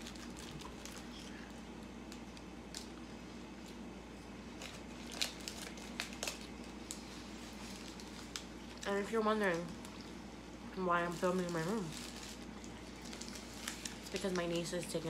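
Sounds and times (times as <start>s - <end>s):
paper wrapper crinkling: 0.0s - 3.8s, 4.4s - 10.1s, 11.0s - 15.0s
faint steady hum: 0.0s - 15.0s.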